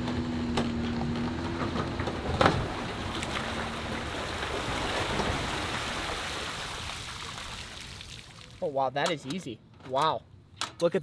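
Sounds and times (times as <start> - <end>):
water rushing off boat hull: 1.5 - 8.5.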